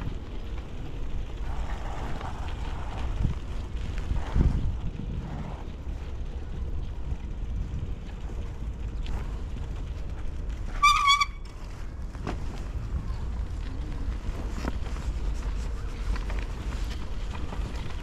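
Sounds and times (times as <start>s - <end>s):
wind on camera: 0.0s - 10.9s
bicycle road rumble: 0.0s - 18.0s.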